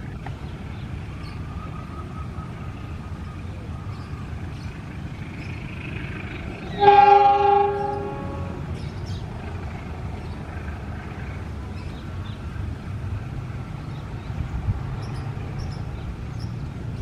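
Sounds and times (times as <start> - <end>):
train rumbling on track: 0.0 - 17.0
train horn: 6.6 - 8.7.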